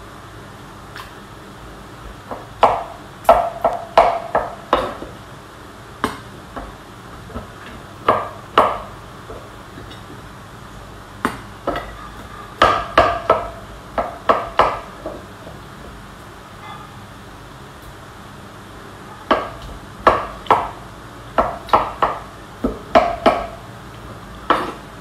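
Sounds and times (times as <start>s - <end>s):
knife chopping on cutting board: 24.5s - 24.8s.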